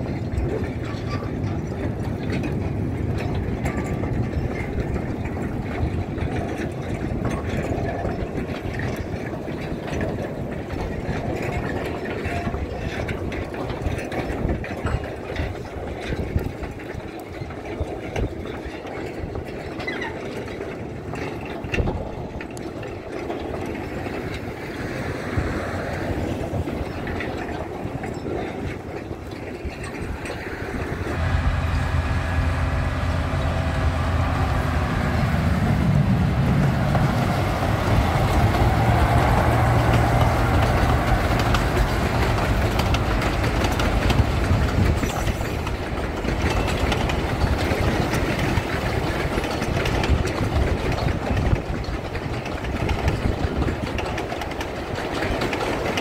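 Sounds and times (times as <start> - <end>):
wheels clattering on rails: 0.0 - 56.0
locomotive engine humming: 19.0 - 56.0.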